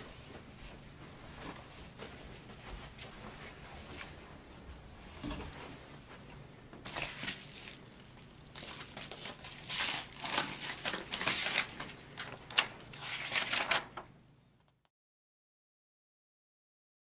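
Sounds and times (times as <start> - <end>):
paper sheet unfolding: 6.8 - 14.0
paper envelope tearing and crinkling: 6.9 - 14.0.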